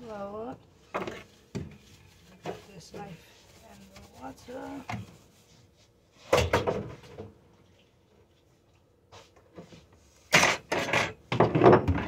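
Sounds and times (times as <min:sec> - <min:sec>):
kitchen things clattering: 0:10.3 - 0:12.0.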